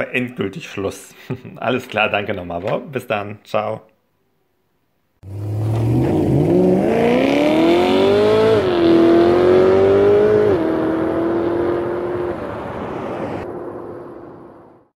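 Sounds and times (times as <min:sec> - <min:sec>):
car engine accelerating: 0:05.2 - 0:13.5.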